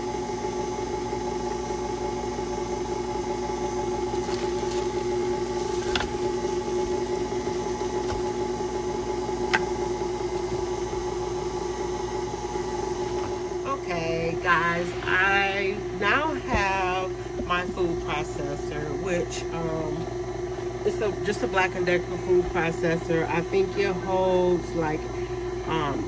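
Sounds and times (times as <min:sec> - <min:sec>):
stand mixer motor hum: 0:00.0 - 0:13.6.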